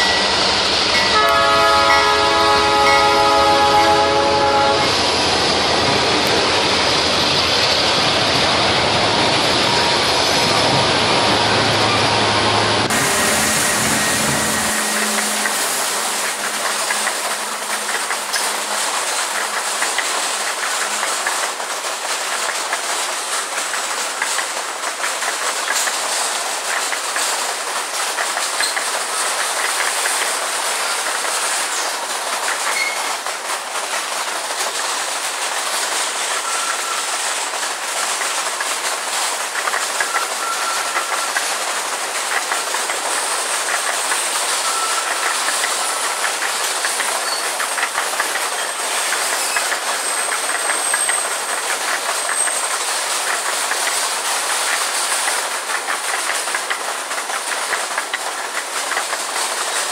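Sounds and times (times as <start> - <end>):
freight train cars rolling past: 0.0 - 59.9
locomotive drone: 0.0 - 59.9
wheels clicking over rail joints: 13.8 - 59.9
wheel squeals: 32.6 - 33.1, 47.0 - 52.8.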